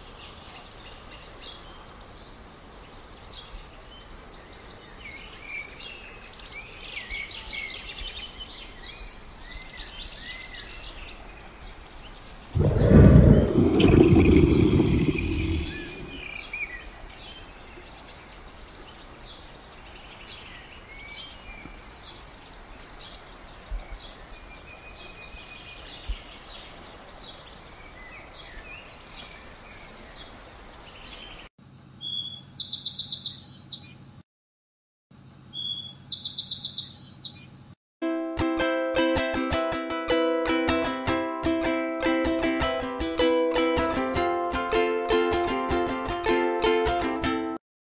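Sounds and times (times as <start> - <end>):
outdoor background hiss: 0.0 - 13.6, 15.7 - 34.2
small birds chirping: 0.0 - 34.0, 35.3 - 37.6
low rumble: 12.6 - 16.4.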